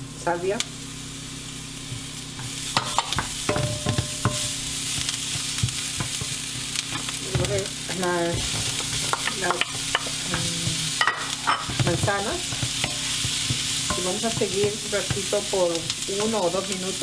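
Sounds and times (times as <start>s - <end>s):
vegetables sizzling in butter: 0.0s - 17.0s
wooden spoon scraping a pan: 4.0s - 16.4s.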